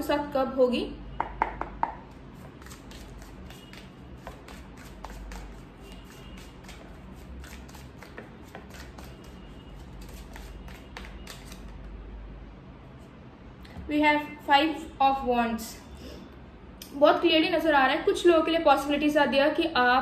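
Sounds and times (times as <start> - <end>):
cards being shuffled: 2.4 - 11.9.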